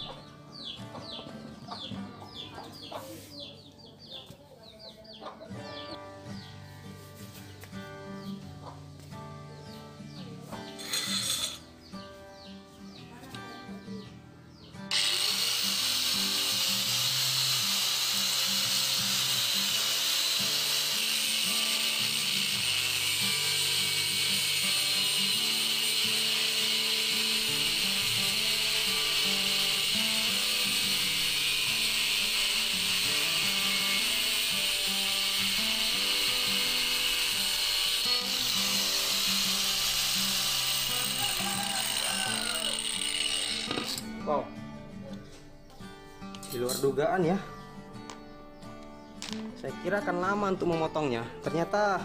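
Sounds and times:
background music: 0:00.0 - 0:52.0
angle grinder cutting steel bar: 0:10.8 - 0:11.6, 0:14.9 - 0:44.1.

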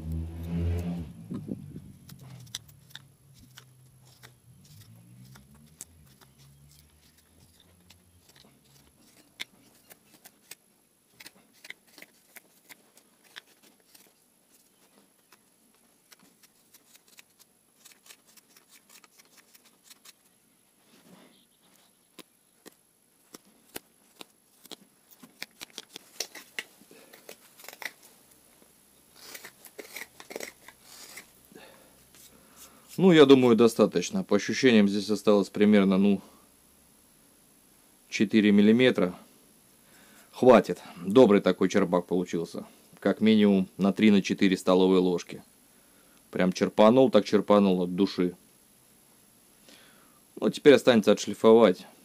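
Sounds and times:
knife cutting wood shavings: 0:01.8 - 0:20.3, 0:22.2 - 0:28.1, 0:29.1 - 0:31.4.

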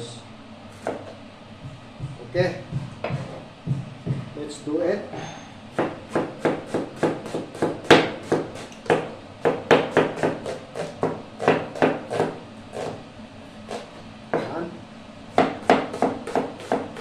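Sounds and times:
cleaver chopping onion on plastic board: 0:00.8 - 0:04.3, 0:05.8 - 0:13.0, 0:13.7 - 0:14.6, 0:15.3 - 0:17.0.

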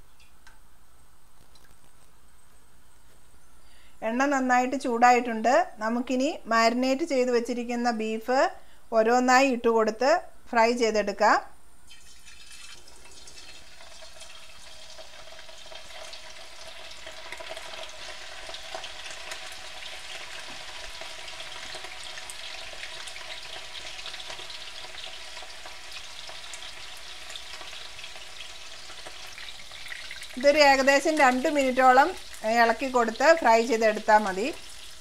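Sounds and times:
meat sizzling in hot oil: 0:11.9 - 0:35.0.

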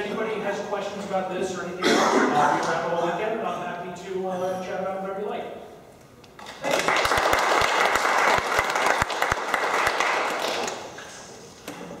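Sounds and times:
audience applauding: 0:06.4 - 0:11.0.

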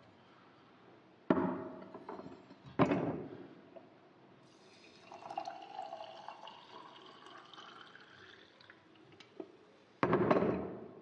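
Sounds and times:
water pouring into a glass: 0:04.4 - 0:09.2.

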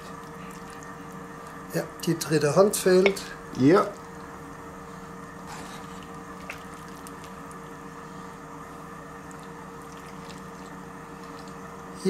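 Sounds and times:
background hum: 0:00.0 - 0:12.0
ladle squishing thick stew: 0:05.4 - 0:07.9, 0:09.1 - 0:12.0.

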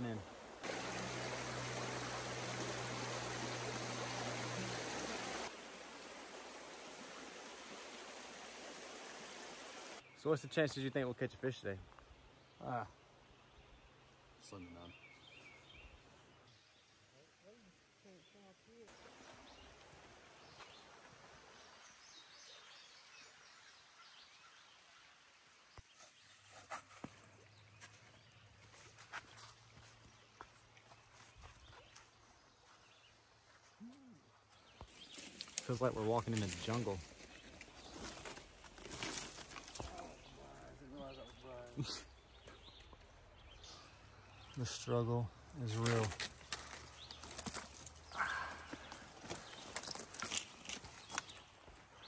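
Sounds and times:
stream rushing over stones: 0:00.0 - 0:10.0
steady outdoor hiss: 0:00.0 - 0:52.0.

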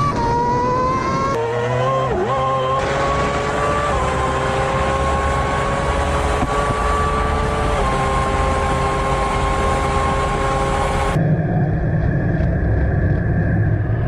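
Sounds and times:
racing car engine at high revs: 0:00.0 - 0:11.2
wind rush: 0:02.8 - 0:14.0.

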